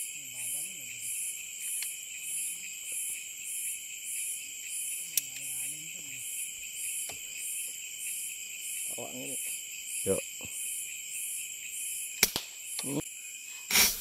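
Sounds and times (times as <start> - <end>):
night insects chirring: 0.0 - 14.0
sharp click: 12.2 - 12.9.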